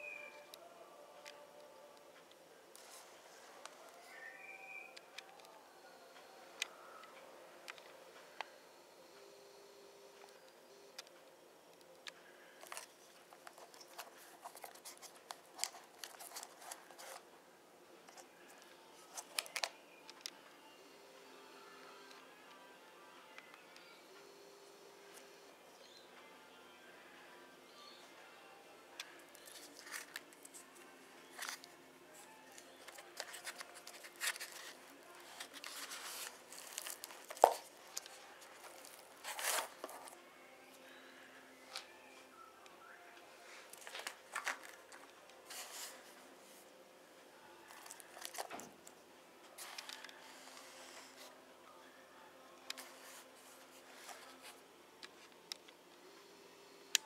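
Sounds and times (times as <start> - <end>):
crinkly rustles of handling: 12.1 - 17.2, 29.0 - 40.2, 43.4 - 46.6, 47.6 - 48.7.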